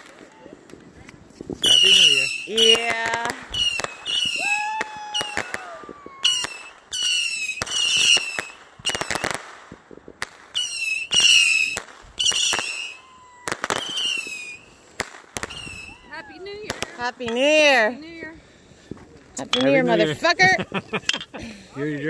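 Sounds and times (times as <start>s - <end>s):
fireworks bangs and crackles: 0.0s - 20.6s
fireworks whistling: 1.4s - 18.0s.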